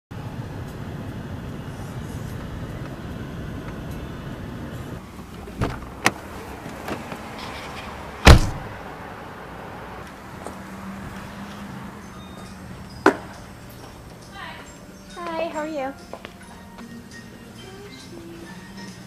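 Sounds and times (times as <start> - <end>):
car engine rumbling: 0.1 - 15.0
car door slamming: 5.6 - 6.2, 8.2 - 8.8.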